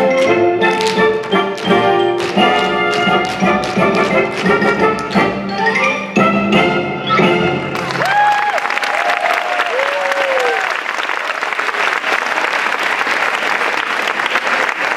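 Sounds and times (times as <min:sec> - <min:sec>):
march music: 0:00.0 - 0:08.0
audience clapping: 0:00.2 - 0:05.1, 0:07.7 - 0:14.9
voices whooping: 0:08.0 - 0:10.7.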